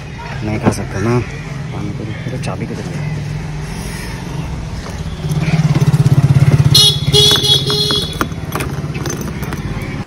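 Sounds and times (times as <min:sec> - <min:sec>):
motor scooter engine running: 0:05.2 - 0:09.6.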